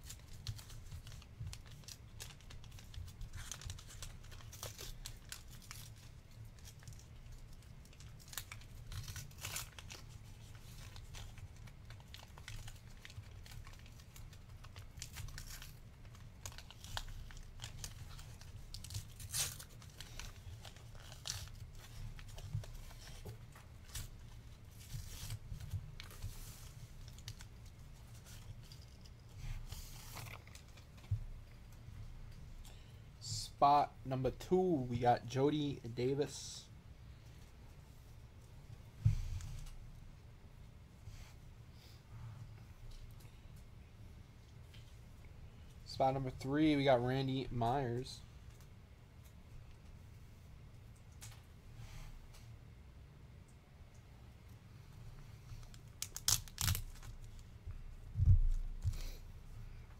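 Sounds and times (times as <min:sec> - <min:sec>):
plastic wrapper tearing and crinkling: 0:00.0 - 0:31.1, 0:55.6 - 0:57.5
steady low hum: 0:00.0 - 0:59.9.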